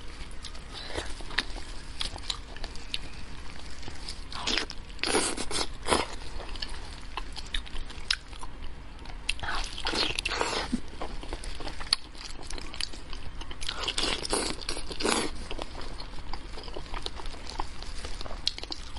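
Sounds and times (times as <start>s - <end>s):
person biting and chewing meat: 4.3s - 8.5s.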